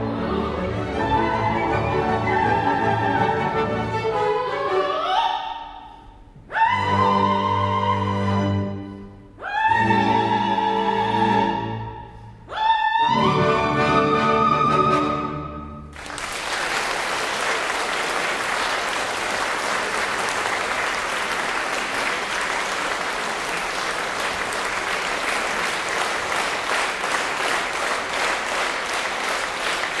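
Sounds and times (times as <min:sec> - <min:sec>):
audience applauding: 0:15.9 - 0:30.0.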